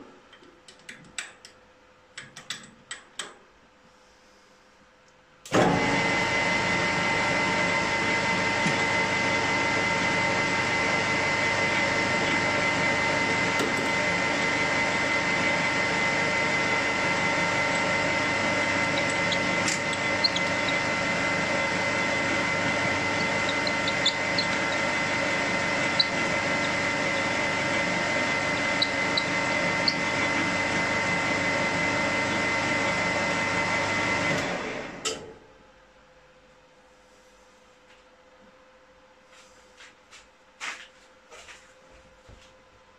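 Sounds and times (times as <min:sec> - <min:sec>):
metal lathe whining: 0:05.6 - 0:35.0.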